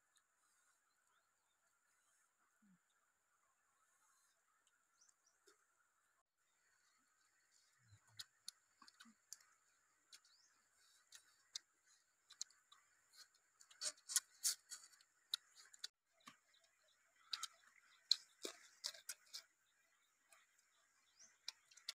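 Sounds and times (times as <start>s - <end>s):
crisp chewing: 8.2s - 9.5s, 12.3s - 16.4s, 17.2s - 19.5s.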